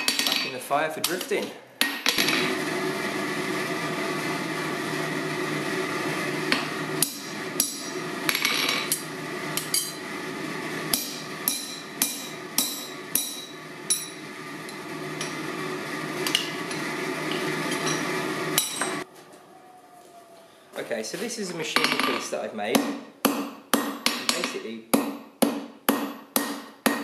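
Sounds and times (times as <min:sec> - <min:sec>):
hammer striking steel on anvil: 0:06.5 - 0:09.0, 0:09.6 - 0:10.0, 0:10.9 - 0:14.2, 0:18.6 - 0:19.0, 0:21.8 - 0:27.0.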